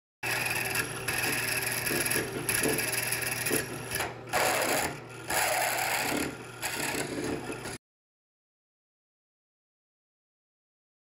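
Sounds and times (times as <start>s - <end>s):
drill bit scraping through steel: 0.2s - 7.8s
drill press motor hum: 0.2s - 7.8s.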